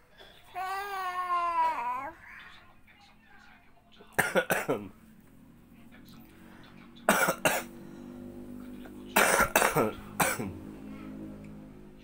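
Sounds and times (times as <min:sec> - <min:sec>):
person coughing: 0:04.2 - 0:04.9, 0:07.1 - 0:07.7, 0:09.2 - 0:10.6.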